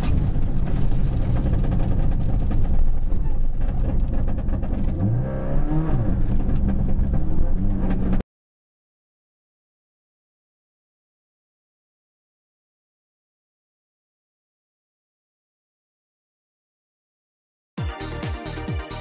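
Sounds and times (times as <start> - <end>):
clatter of sharp knocks: 0.0 - 5.1
car engine at high revs: 0.0 - 8.2.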